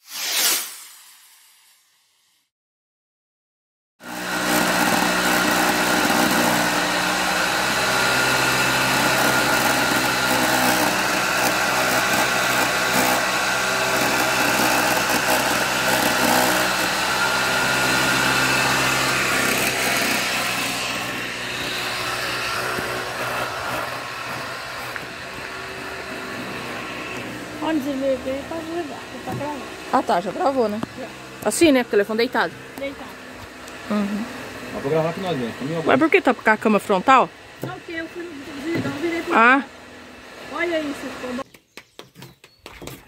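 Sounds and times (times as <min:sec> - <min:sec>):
corn scraping on grater: 0:04.0 - 0:32.6
motor hum: 0:04.0 - 0:41.4.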